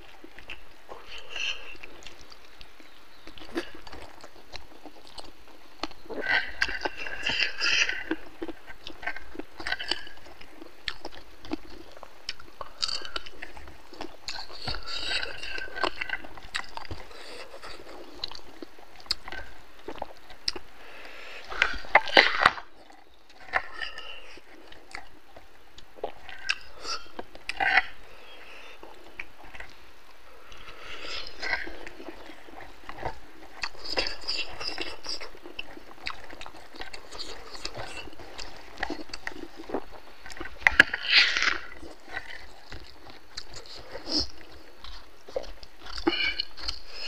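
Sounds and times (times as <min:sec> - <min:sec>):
man chewing and lip-smacking: 0:00.0 - 0:47.0
biting clicks: 0:30.5 - 0:47.0.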